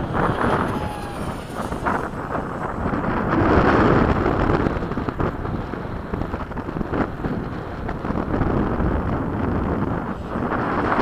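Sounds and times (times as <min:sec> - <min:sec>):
distant rc jet rushing: 0:00.0 - 0:04.8
wind buffeting microphone: 0:00.0 - 0:11.0.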